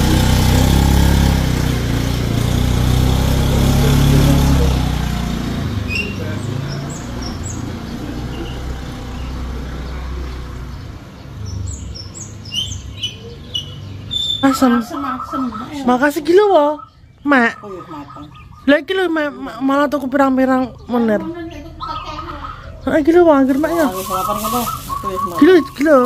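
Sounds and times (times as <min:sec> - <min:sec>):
scooter engine pulling away: 0:00.0 - 0:15.9, 0:21.4 - 0:26.0
birds chirping: 0:00.0 - 0:26.0.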